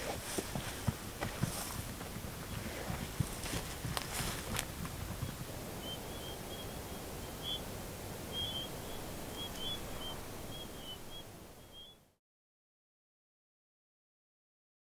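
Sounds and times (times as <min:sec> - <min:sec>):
scuffs: 0:00.0 - 0:04.8
open-air rush: 0:00.0 - 0:12.2.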